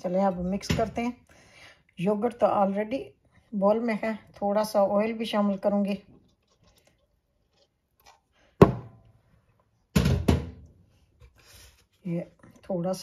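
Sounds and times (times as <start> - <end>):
container thunk on counter: 8.6 - 9.0.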